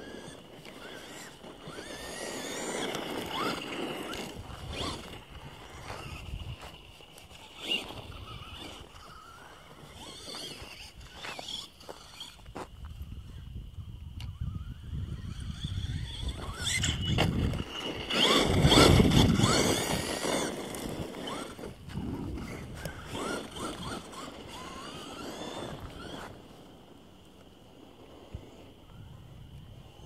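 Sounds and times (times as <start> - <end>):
tyres crunching on gravel: 0.0 - 12.9, 15.8 - 26.7
rc truck motor whine: 0.0 - 30.0.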